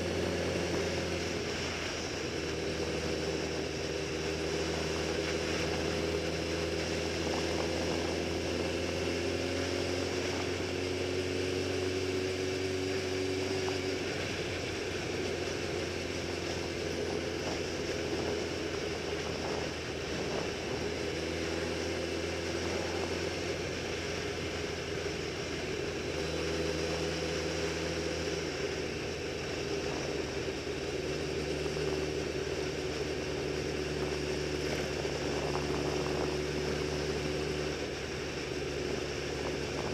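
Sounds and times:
motorcycle engine cruising: 0:00.0 - 0:39.9
wind rushing over microphone: 0:13.2 - 0:24.6, 0:33.2 - 0:39.9.

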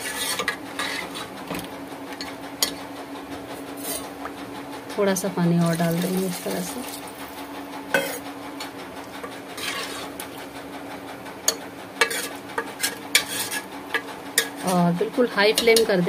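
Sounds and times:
ladle scraping a metal pot: 0:00.0 - 0:01.3, 0:09.5 - 0:10.4, 0:12.0 - 0:14.8
steady low hum: 0:00.0 - 0:16.0.

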